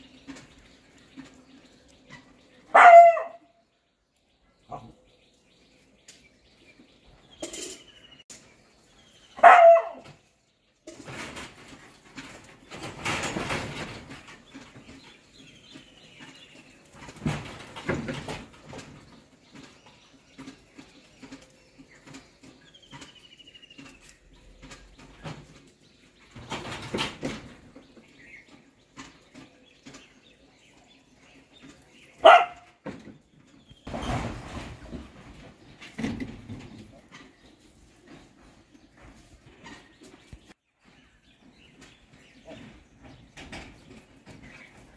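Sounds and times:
dog barking: 2.7s - 3.5s, 9.4s - 10.1s, 32.2s - 32.7s.

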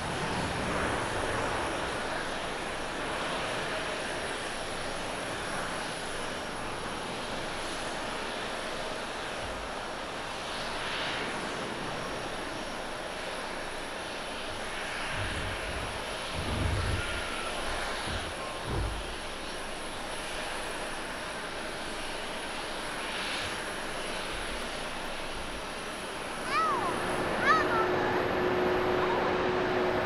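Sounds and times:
jet engine and airframe rush: 0.0s - 30.0s
deep low rumbles: 15.1s - 19.2s.

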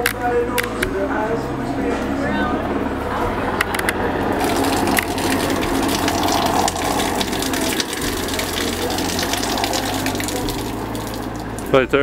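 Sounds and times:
shower water splattering: 4.4s - 11.7s.

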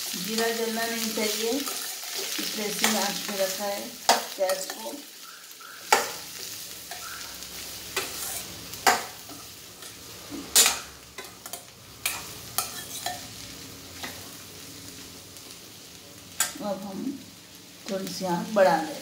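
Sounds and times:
beans sizzling in hot oil: 0.0s - 19.0s
spoon scraping and clinking pan: 8.0s - 10.0s, 10.6s - 13.3s.

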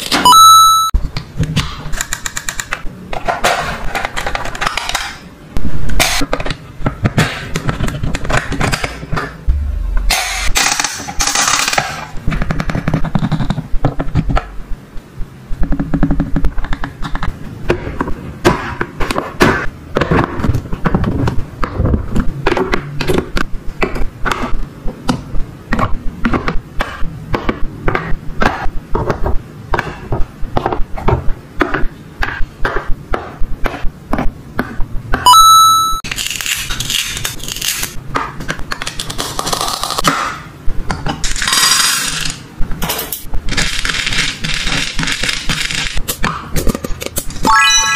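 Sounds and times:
toy electronic beep: 0.2s - 1.0s, 35.3s - 36.0s, 47.5s - 47.9s.

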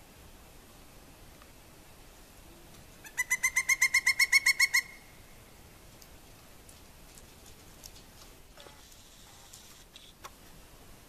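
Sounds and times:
woodpecker rapid wuk calls: 3.0s - 5.2s.

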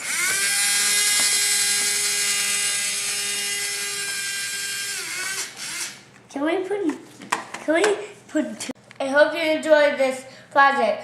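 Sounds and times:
toy motor whining: 0.0s - 6.0s.

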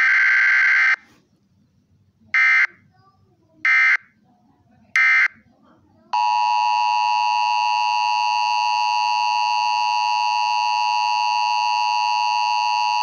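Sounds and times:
two-tone alarm: 6.2s - 13.0s.

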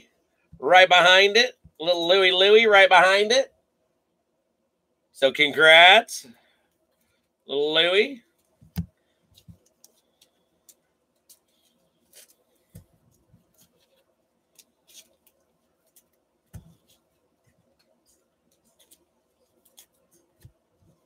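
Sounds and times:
cards clicking and tapping on table: 8.6s - 10.0s.

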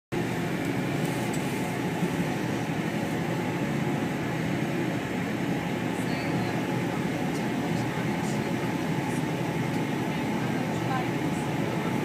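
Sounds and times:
train running inside carriage: 7.2s - 12.0s.

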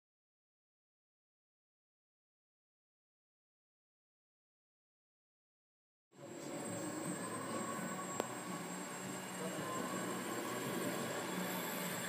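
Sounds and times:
model aeroplane motor whining: 6.2s - 12.0s.

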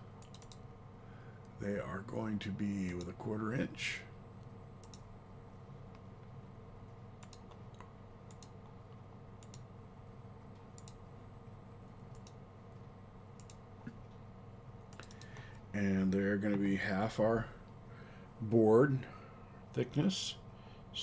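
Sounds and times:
steady low hum: 0.0s - 21.0s
computer mouse clicks: 0.2s - 0.6s, 4.4s - 5.1s, 7.2s - 8.8s, 9.4s - 9.7s, 10.5s - 11.0s, 12.0s - 12.4s, 13.4s - 14.0s, 14.9s - 15.6s.

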